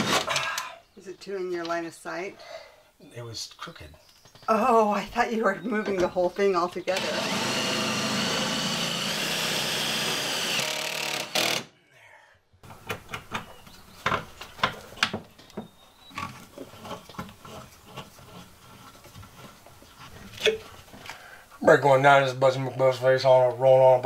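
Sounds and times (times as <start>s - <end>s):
cordless drill running: 6.9s - 11.7s
hardware clicking and knocking: 12.6s - 18.1s.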